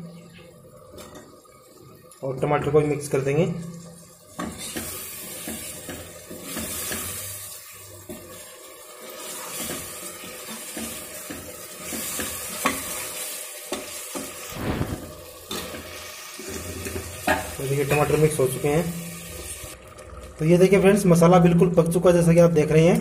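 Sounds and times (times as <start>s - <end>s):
oil sizzling: 0.0s - 22.0s
ladle scraping and knocking pot: 16.5s - 18.1s.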